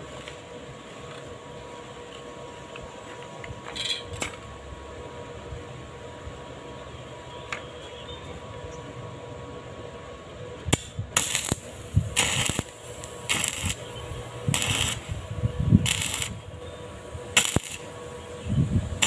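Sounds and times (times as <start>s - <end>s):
faint steady hum: 0.0s - 19.0s
welding arc crackle: 10.7s - 19.0s.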